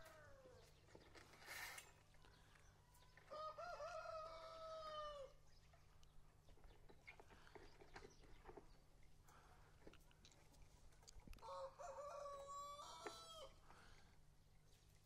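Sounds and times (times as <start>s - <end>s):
rooster crowing: 3.3s - 5.3s, 11.4s - 13.6s.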